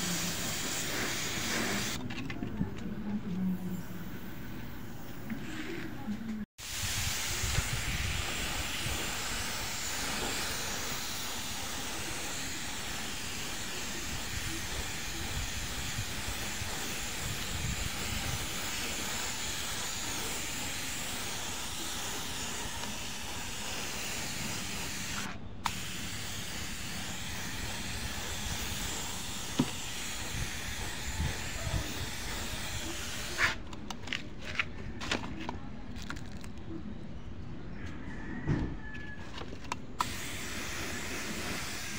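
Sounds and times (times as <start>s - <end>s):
paint spray gun hissing: 0.0s - 2.0s, 6.6s - 33.6s, 40.0s - 41.9s.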